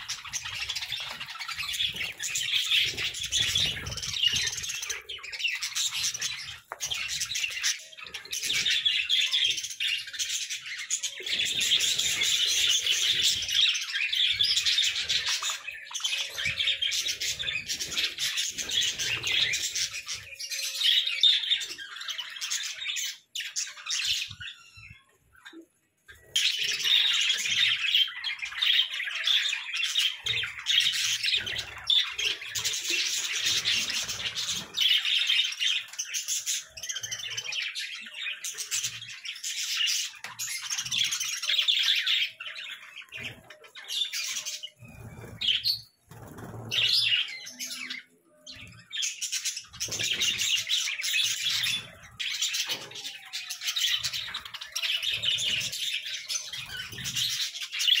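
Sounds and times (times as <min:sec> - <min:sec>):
budgerigars chattering and chirping: 0:26.2 - 0:58.0.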